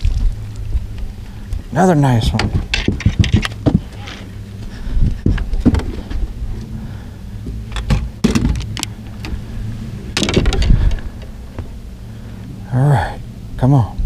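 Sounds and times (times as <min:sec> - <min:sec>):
boat motor running: 0:00.0 - 0:13.7
gear knocking and rattling: 0:02.2 - 0:04.2, 0:07.5 - 0:09.4, 0:10.2 - 0:11.7.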